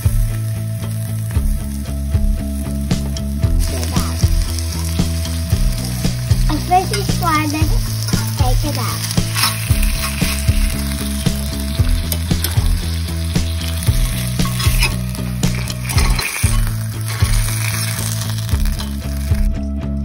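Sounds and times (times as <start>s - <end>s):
fish sizzling in a skillet: 0.0s - 19.5s
metal spatula scraping pan: 9.0s - 19.3s.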